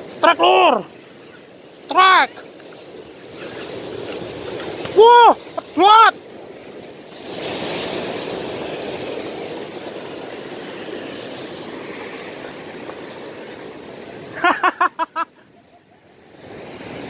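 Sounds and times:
sea surf washing over rocks: 0.0s - 17.0s
person laughing: 14.3s - 15.8s.

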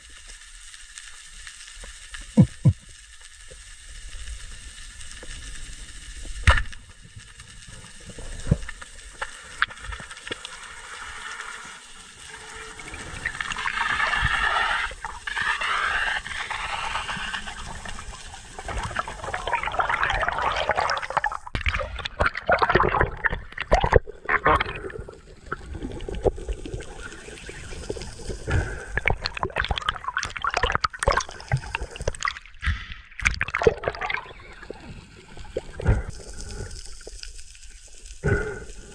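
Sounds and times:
underwater gurgling and bubbling: 2.0s - 38.9s.

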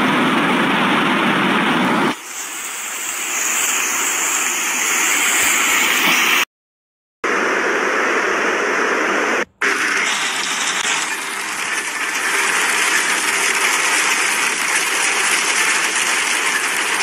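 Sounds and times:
heavy rain: 7.3s - 17.0s.

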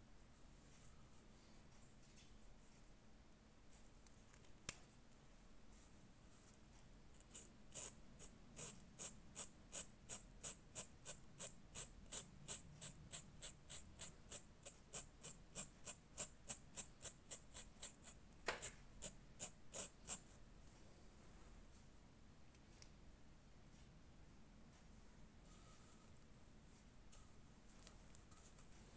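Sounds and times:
felt tip marker rubbing on fabric: 7.3s - 20.4s.

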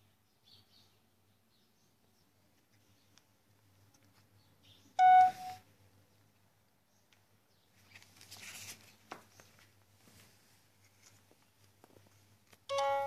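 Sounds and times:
soft rustling: 7.1s - 12.7s.

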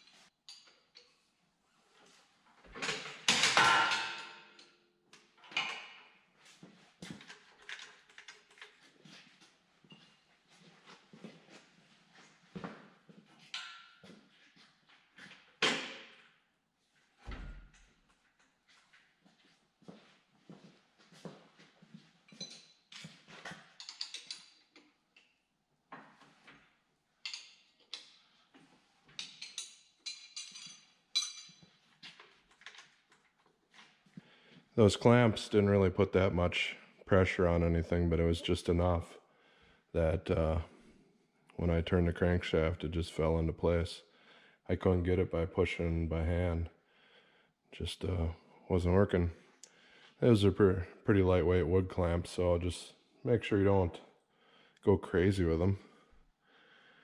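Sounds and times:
metal tools clanking: 29.2s - 31.8s.

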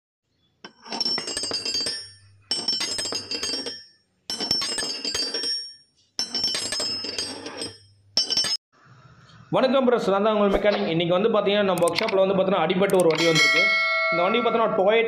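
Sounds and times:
glassy clinking and chiming: 0.7s - 8.6s.

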